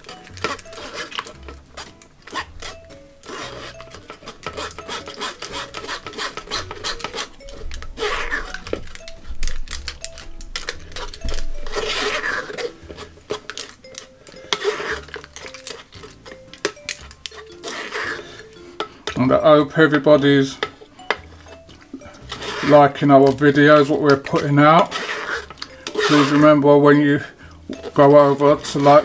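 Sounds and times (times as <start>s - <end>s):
spoon scraping pulp through sieve: 0.0s - 9.0s, 10.7s - 16.4s, 17.0s - 19.0s, 22.1s - 27.1s, 27.8s - 29.0s
light jazz music: 0.0s - 29.0s.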